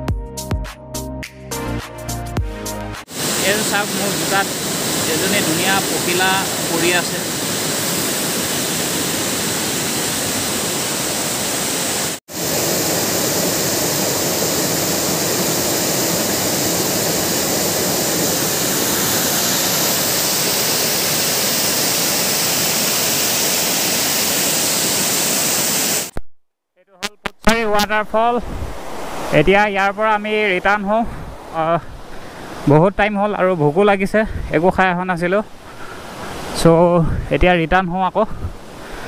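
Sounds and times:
waterfall rushing: 0:03.1 - 0:26.1.

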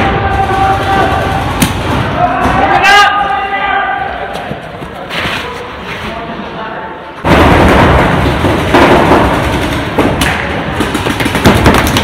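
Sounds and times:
paintball markers firing: 0:08.3 - 0:12.0.

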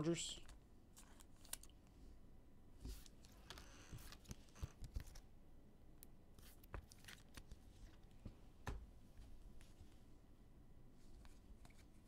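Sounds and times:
trading cards and packaging rustling: 0:06.4 - 0:08.2.

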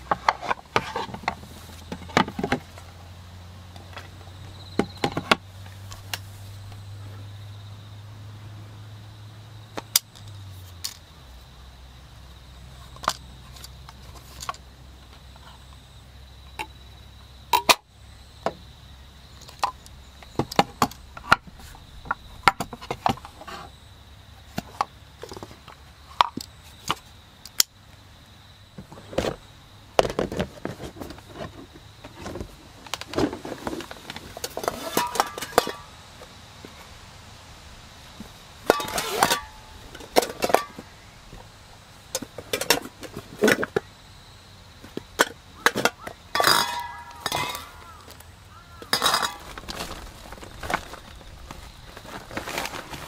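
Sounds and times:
wooden boards knocking and tapping: 0:00.0 - 0:02.8, 0:04.7 - 0:05.4
rustling and clinking items: 0:00.0 - 0:02.9, 0:13.0 - 0:14.6, 0:30.0 - 0:36.0, 0:38.2 - 0:41.0, 0:42.1 - 0:43.9, 0:44.8 - 0:48.2, 0:48.8 - 0:53.0.

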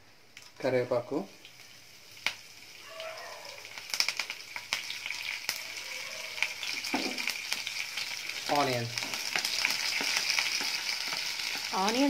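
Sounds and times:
seeds and leaves sizzling in oil: 0:00.0 - 0:12.0
sharp crackling pops: 0:01.4 - 0:02.5, 0:03.5 - 0:05.6, 0:06.4 - 0:12.0.

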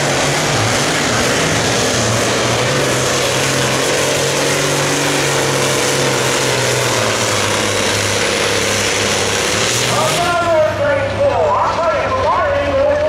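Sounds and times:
dirt and sled noise: 0:00.0 - 0:13.0
tractor engine running flat out: 0:00.0 - 0:13.0.

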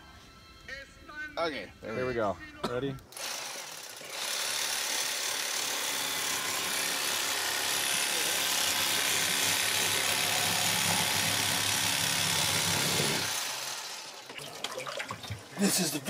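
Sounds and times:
electric knife buzzing: 0:03.1 - 0:14.3.

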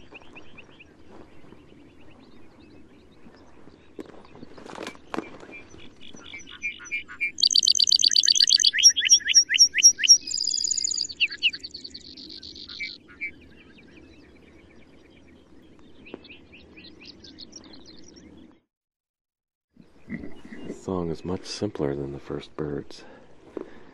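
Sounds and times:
bird song with trills: 0:00.0 - 0:18.7.

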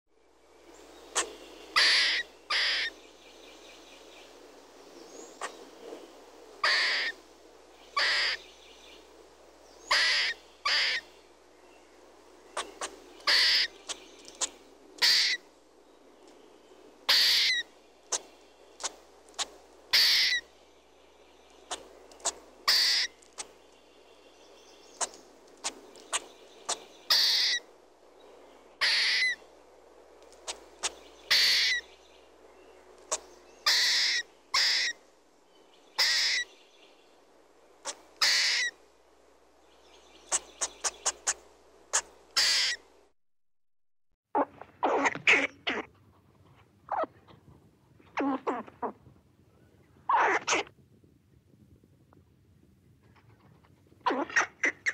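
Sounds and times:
squirrel calls: 0:01.1 - 0:03.0, 0:05.3 - 0:05.6, 0:06.6 - 0:07.2, 0:07.9 - 0:08.5, 0:09.8 - 0:11.1, 0:12.5 - 0:15.5, 0:17.1 - 0:20.5, 0:21.5 - 0:23.6, 0:24.8 - 0:27.7, 0:28.8 - 0:29.4, 0:30.3 - 0:31.9, 0:33.0 - 0:35.0, 0:36.0 - 0:36.5, 0:37.8 - 0:38.8, 0:40.2 - 0:42.9, 0:44.4 - 0:45.9, 0:46.9 - 0:47.2, 0:50.1 - 0:50.7, 0:54.0 - 0:54.9
squirrel chattering: 0:01.1 - 0:03.0, 0:06.6 - 0:07.1, 0:08.0 - 0:08.4, 0:09.9 - 0:11.1, 0:12.6 - 0:15.4, 0:17.1 - 0:20.4, 0:21.6 - 0:23.5, 0:25.0 - 0:27.6, 0:28.8 - 0:29.4, 0:30.4 - 0:31.8, 0:33.1 - 0:35.0, 0:36.0 - 0:36.5, 0:37.8 - 0:38.7, 0:40.3 - 0:42.8, 0:44.4 - 0:45.9, 0:54.0 - 0:54.9
squirrel clicks: 0:14.2 - 0:14.6.

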